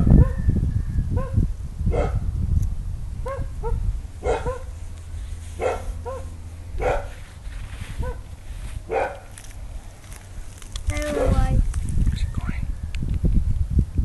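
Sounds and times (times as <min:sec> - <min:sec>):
dog barking: 0:01.2 - 0:02.3, 0:03.2 - 0:04.7, 0:05.6 - 0:07.1, 0:08.0 - 0:08.2, 0:08.9 - 0:09.3, 0:11.1 - 0:11.5.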